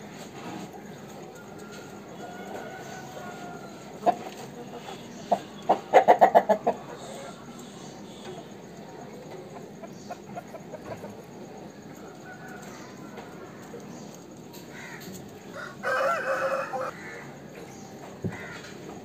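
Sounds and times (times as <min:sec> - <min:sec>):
rooster crowing: 0:00.9 - 0:04.2, 0:11.9 - 0:13.7, 0:14.7 - 0:17.3
rooster clucking: 0:02.4 - 0:07.6.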